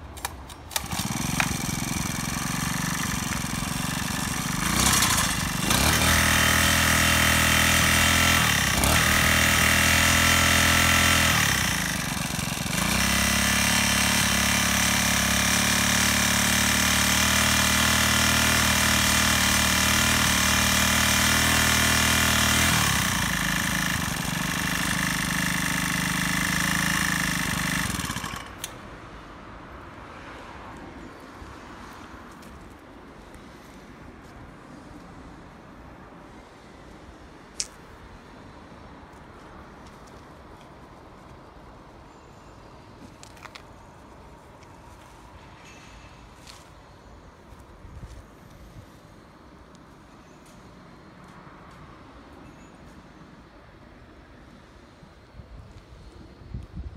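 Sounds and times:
engine pull-start cord: 0.1 - 9.5, 10.3 - 28.8
small engine idling and revving: 0.5 - 28.9.

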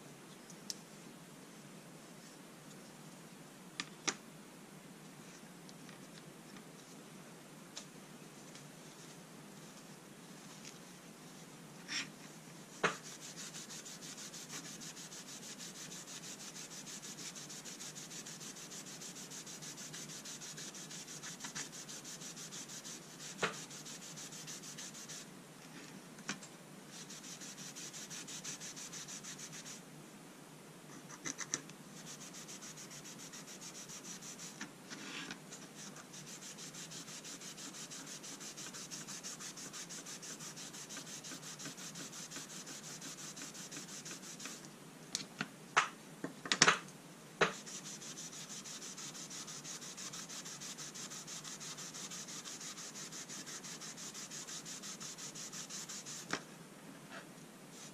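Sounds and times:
wipe scrubbing on folding rule: 12.9 - 25.2, 26.9 - 29.8, 32.0 - 44.6, 47.5 - 56.3.

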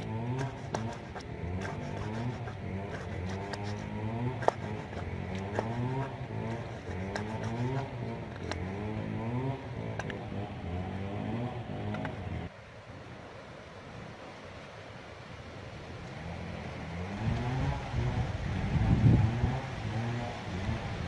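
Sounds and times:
motor revving: 0.0 - 12.4
cleaver chopping on wooden board: 0.2 - 8.7.

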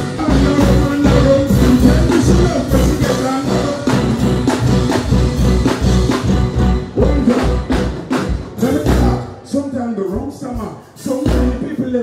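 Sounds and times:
electric guitar: 0.0 - 9.4
drum and bass beat: 0.0 - 12.0
live band music over pa: 0.0 - 12.0.

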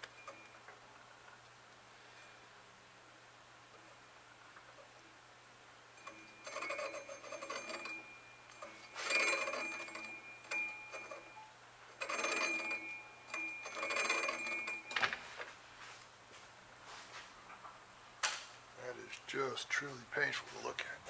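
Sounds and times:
metal lathe cutting with ringing tone: 6.0 - 11.4.

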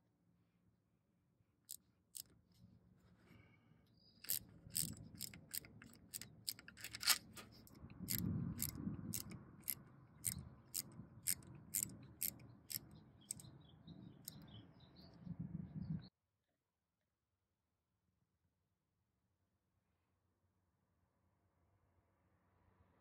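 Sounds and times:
ratchet clicking: 4.2 - 13.5.

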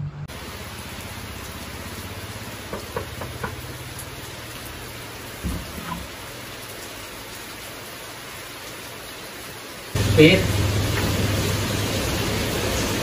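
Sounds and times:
steady rain: 0.3 - 13.0
knuckle knocks on door: 2.7 - 3.6
dull thuds: 5.4 - 6.2.

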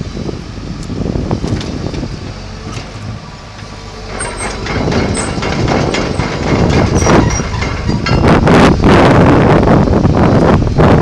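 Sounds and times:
excavator diesel engine running: 0.0 - 11.0
rattling track clanks: 1.4 - 9.7
short high squeaks: 6.9 - 8.4.

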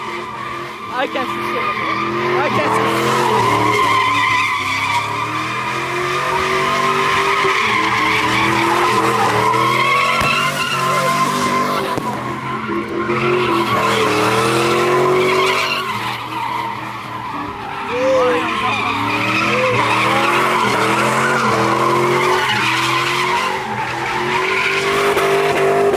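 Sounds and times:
car engine revving high: 0.0 - 25.9
tires squealing: 0.0 - 25.9.

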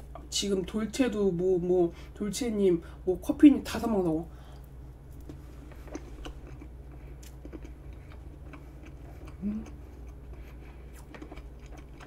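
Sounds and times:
low steady hum: 0.0 - 12.0
chewing with wet mouth clicks: 4.6 - 12.0
person humming: 9.4 - 9.8.

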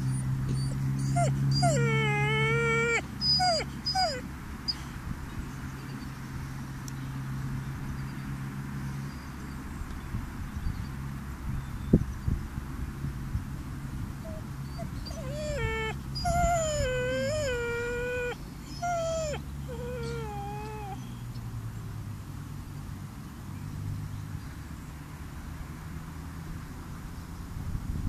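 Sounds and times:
puppy whining: 0.0 - 4.9, 14.2 - 21.1.

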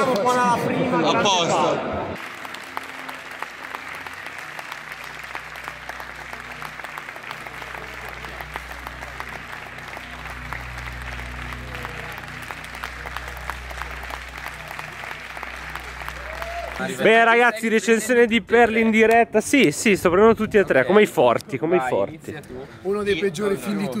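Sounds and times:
audience applauding: 2.2 - 17.8
low hum: 2.5 - 16.9.

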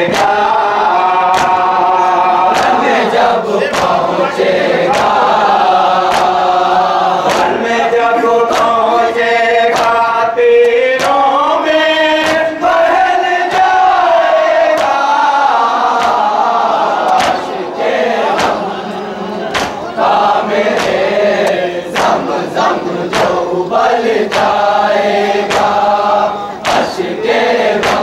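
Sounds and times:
chest beating slaps: 0.0 - 0.5, 1.2 - 1.8, 2.5 - 6.6, 7.2 - 7.7, 8.4 - 8.8, 14.6 - 15.1, 15.9 - 16.4, 17.0 - 18.8, 19.5 - 24.8, 25.4 - 28.0
men chanting in unison: 0.0 - 28.0.

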